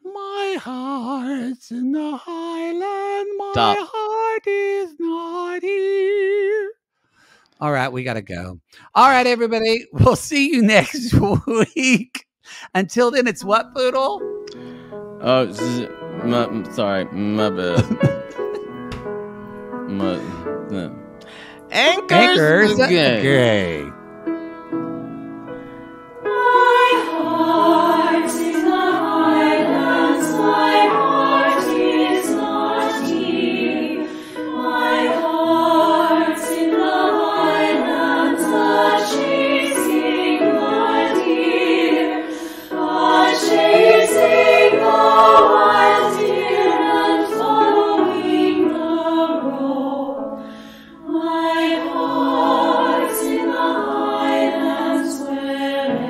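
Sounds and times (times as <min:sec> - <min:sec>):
choral singing: 0:03.5 - 0:03.8, 0:21.8 - 0:23.9, 0:26.2 - 0:56.0.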